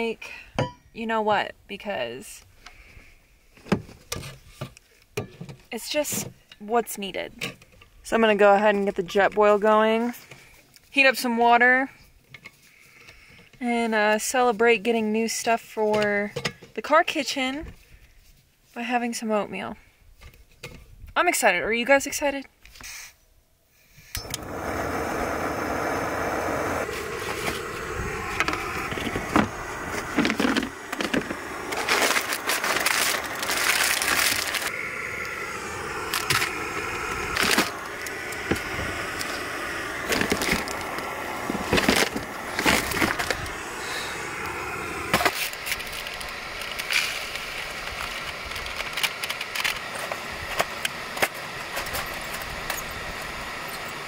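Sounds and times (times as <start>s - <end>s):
gas stove burner hissing: 24.0s - 54.0s
packaging crinkling: 30.1s - 34.7s.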